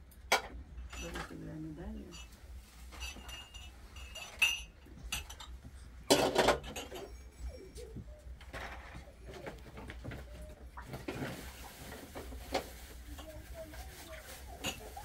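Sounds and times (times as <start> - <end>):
metal tray and glasses clattering: 0.3 - 7.6.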